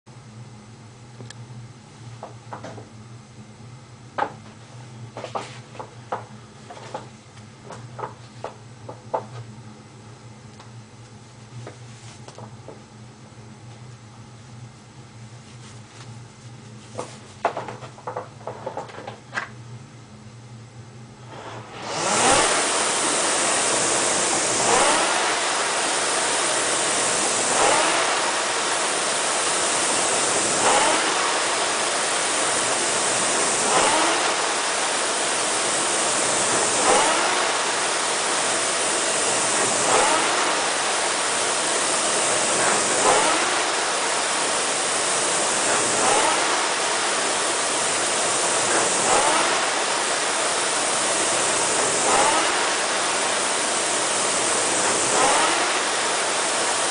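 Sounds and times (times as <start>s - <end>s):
rowing machine flywheel whooshing: 21.3s - 56.9s.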